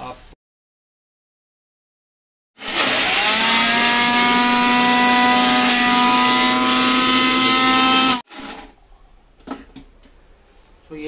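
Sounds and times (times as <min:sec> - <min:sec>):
mixer grinder motor whine: 0:02.6 - 0:08.6.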